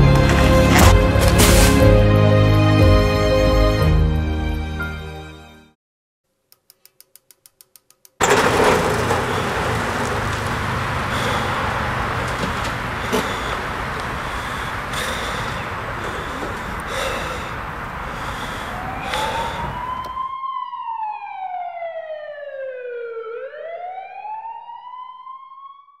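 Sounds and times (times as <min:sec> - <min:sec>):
emergency siren wailing: 0:08.2 - 0:26.0.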